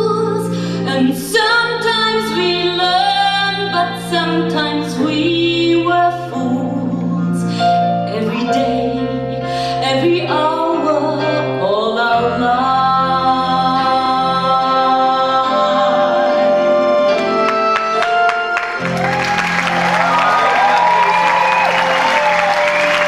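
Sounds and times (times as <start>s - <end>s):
woman singing a ballad: 0.0s - 17.0s
instrumental accompaniment: 0.8s - 23.0s
applause: 17.7s - 23.0s.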